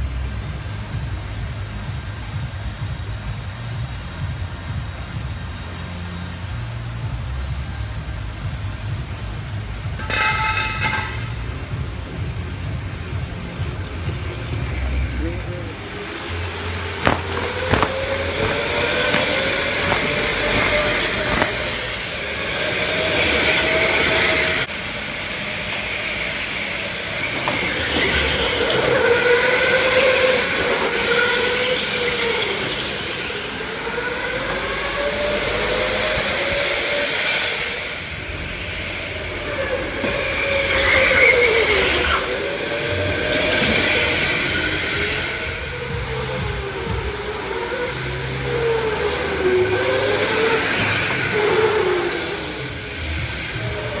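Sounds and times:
steady hiss: 0:00.0 - 0:33.8
electric go-kart motors whining: 0:04.0 - 0:54.0.

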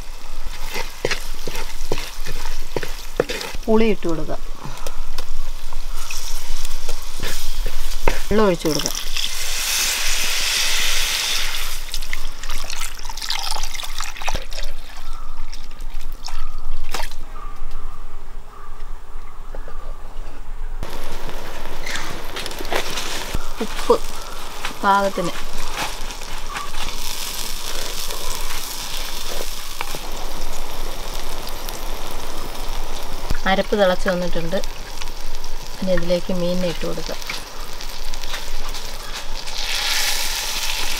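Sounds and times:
water pouring into a pot: 0:11.6 - 0:14.8.

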